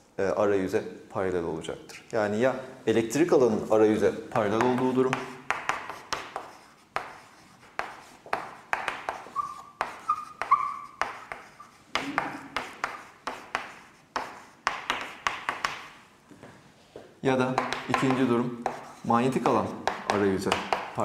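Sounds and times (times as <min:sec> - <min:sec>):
taps and strokes writing on board: 0:04.4 - 0:16.0, 0:17.4 - 0:21.0.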